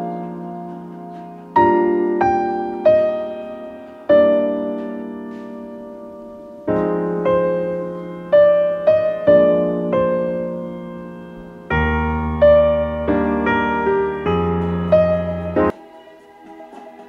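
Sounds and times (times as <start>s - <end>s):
slow solo piano: 0.0s - 15.8s.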